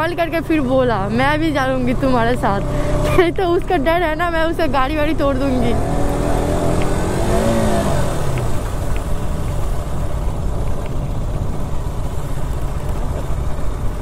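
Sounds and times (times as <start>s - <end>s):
motorcycle engine revving: 0.6s - 10.3s.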